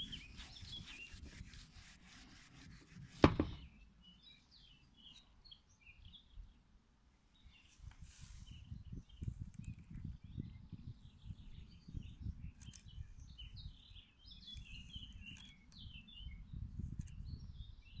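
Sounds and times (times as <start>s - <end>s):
birds chirping: 0.0s - 1.7s, 8.5s - 16.6s.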